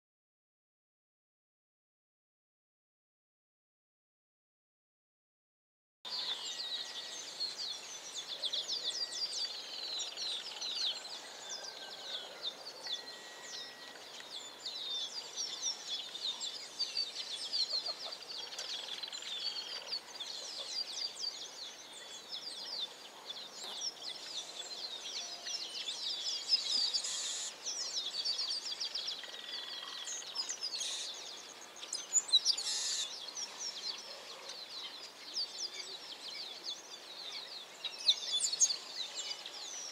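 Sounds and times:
small birds chirping: 6.1s - 39.9s.

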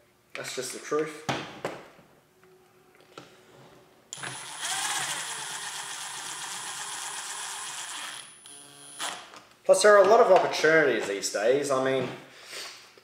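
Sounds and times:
power driver motor whining: 4.1s - 9.3s.

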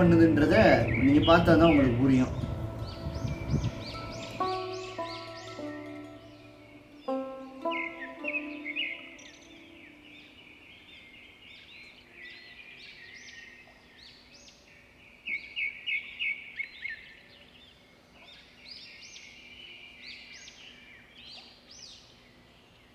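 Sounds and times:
small birds chirping and singing: 0.0s - 22.9s
sharp bird chirps: 0.7s - 13.8s.

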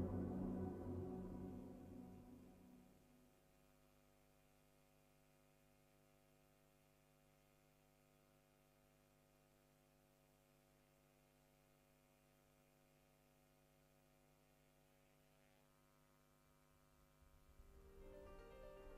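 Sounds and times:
music: 0.0s - 2.9s, 17.6s - 18.9s.

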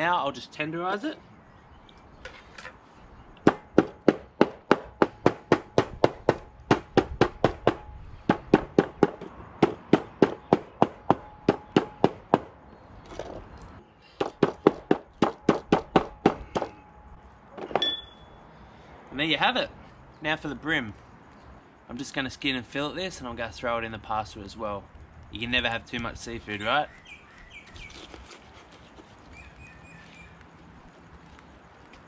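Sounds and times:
octopus beaten on a board: 3.4s - 12.5s.

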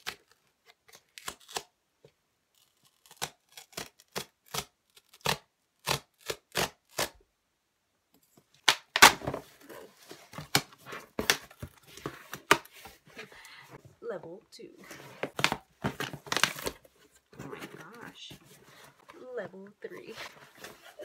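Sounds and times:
cardboard rustling and tearing: 8.9s - 13.7s, 14.7s - 21.0s.

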